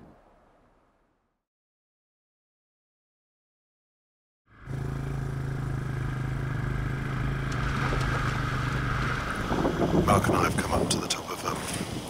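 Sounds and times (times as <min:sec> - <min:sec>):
quad bike engine running: 0:04.6 - 0:10.4.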